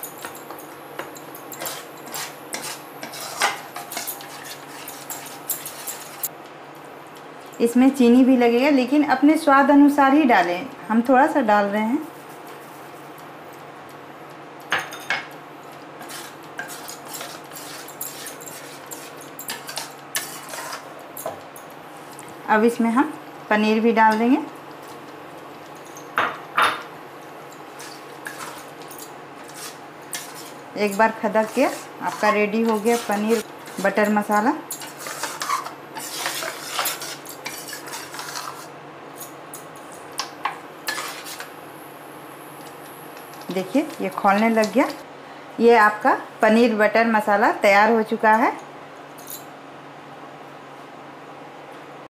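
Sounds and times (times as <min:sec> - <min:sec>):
spatula tapping and scraping pan: 0:00.2 - 0:06.2
spatula scraping steel pan: 0:01.6 - 0:06.3, 0:16.0 - 0:20.8, 0:29.5 - 0:34.1, 0:34.8 - 0:38.7.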